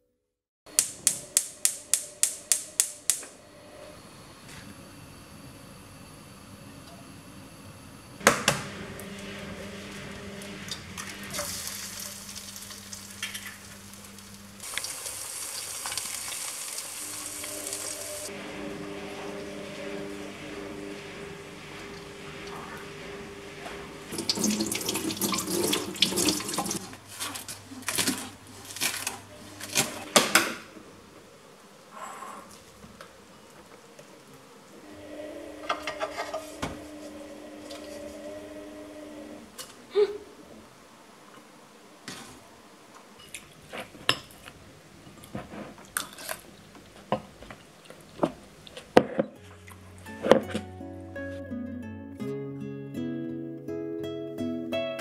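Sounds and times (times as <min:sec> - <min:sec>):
kitchen tap running into sink: 0:11.2 - 0:18.3, 0:24.1 - 0:26.9.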